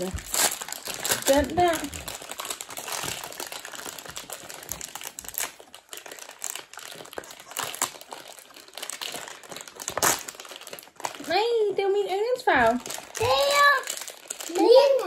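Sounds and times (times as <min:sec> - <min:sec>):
wrappers crinkling: 0:00.0 - 0:15.0.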